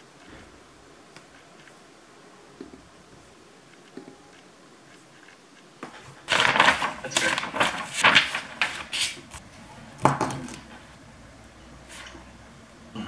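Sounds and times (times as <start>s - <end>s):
paper rustling: 3.8s - 9.5s.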